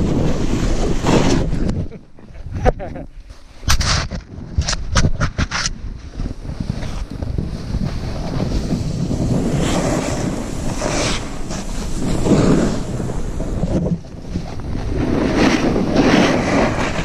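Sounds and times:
wind buffeting camera microphone: 0:00.0 - 0:17.0
snow spraying: 0:06.4 - 0:17.0.

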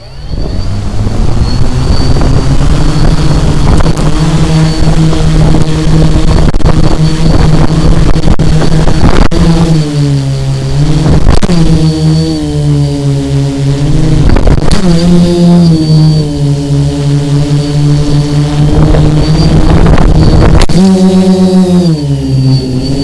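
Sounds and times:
drone motors and propellers: 0:00.0 - 0:23.0
thin high whine: 0:00.0 - 0:23.0.

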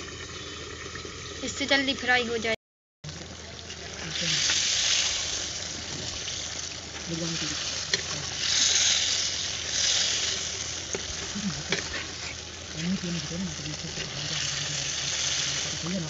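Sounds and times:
fish sizzling in oil: 0:03.1 - 0:16.0
metal spatula scraping pot: 0:07.0 - 0:16.0.

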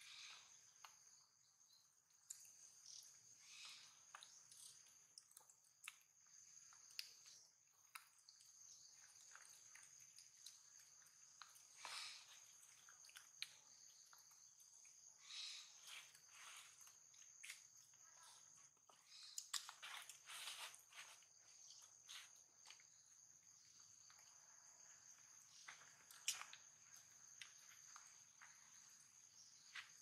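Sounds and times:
soft rustles and clicks: 0:19.4 - 0:22.9.

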